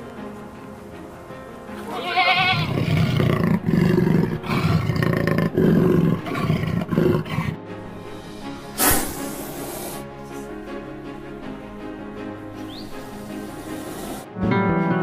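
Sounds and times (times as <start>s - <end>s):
background music: 0.0s - 15.0s
goat bleat: 1.8s - 3.2s
big cat growling and roaring: 2.5s - 7.6s
hissing burst: 8.2s - 10.2s.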